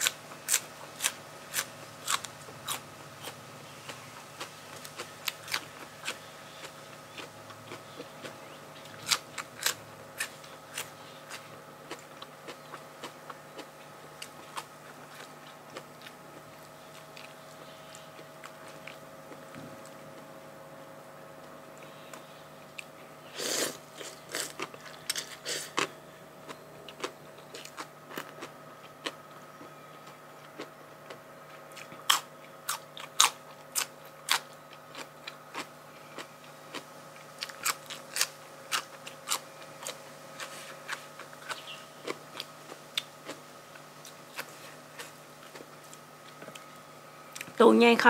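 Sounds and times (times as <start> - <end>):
person chewing crunchy food: 0.0 - 20.3, 21.8 - 47.5.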